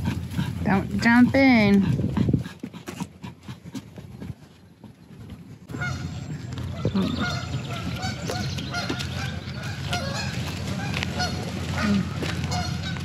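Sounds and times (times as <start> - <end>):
steady low rumble: 0.0 - 13.0
ducks honking: 5.7 - 13.0.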